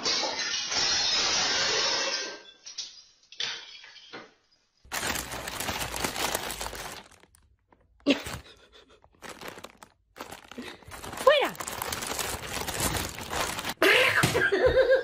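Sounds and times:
plastic bag crinkling and rustling: 4.9s - 13.8s.

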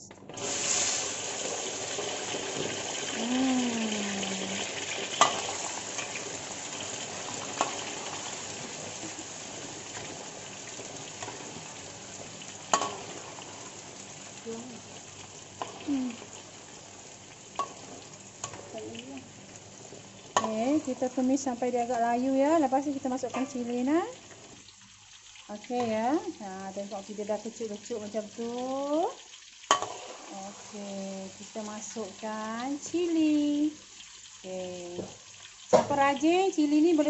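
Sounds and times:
food sizzling in hot oil: 0.0s - 37.0s.

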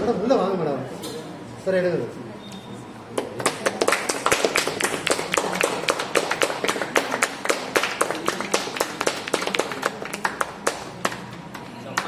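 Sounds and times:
people clapping: 3.1s - 12.0s.

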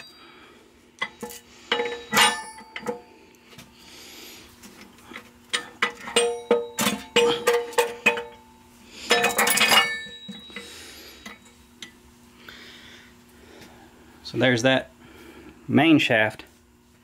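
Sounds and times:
steel gears clinking: 1.1s - 3.0s, 9.1s - 11.5s.

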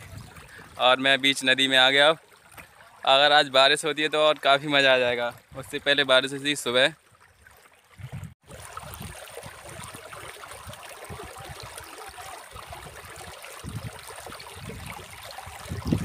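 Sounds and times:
river water babbling over rocks: 8.5s - 16.0s.

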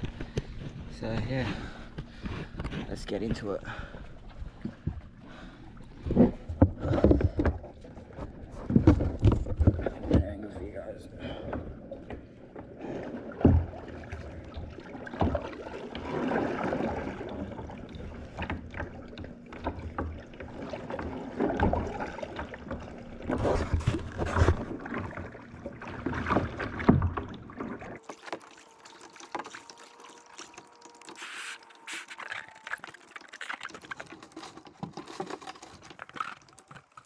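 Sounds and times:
faint steady hum: 0.0s - 36.8s
paddle strokes splashing: 12.7s - 37.0s.

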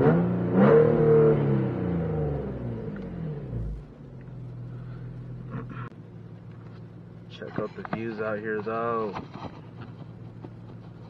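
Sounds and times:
car exhaust revving and droning: 0.0s - 7.7s.

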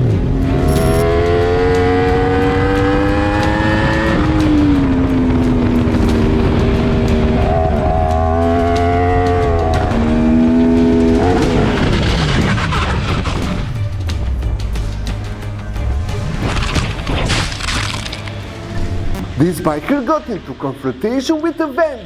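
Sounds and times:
motorcycle engine revving high: 0.2s - 12.2s.

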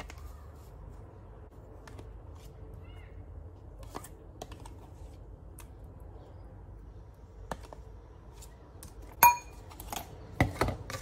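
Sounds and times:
spoon clinking against ceramic bowl: 9.2s - 9.6s.

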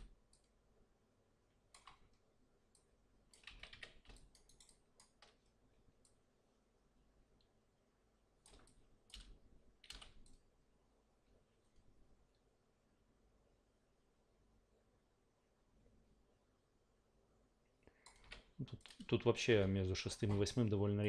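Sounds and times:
keyboard and mouse clicks: 1.7s - 6.2s, 8.4s - 10.4s, 18.0s - 19.1s, 20.1s - 20.6s.

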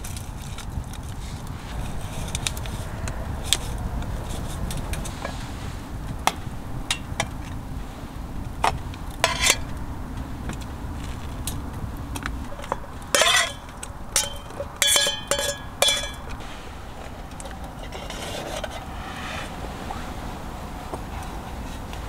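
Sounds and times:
low steady rumble: 0.0s - 22.0s
metal cookware clinking: 9.2s - 9.7s, 12.6s - 16.4s.

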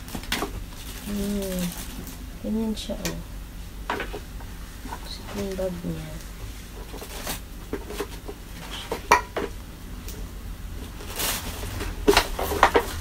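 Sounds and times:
paper rustling: 10.8s - 13.0s.

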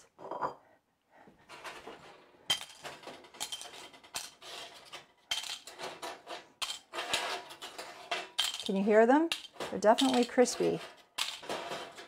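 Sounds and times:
dishes clinking: 0.2s - 0.6s
chips rattling and crackling: 2.5s - 12.0s.

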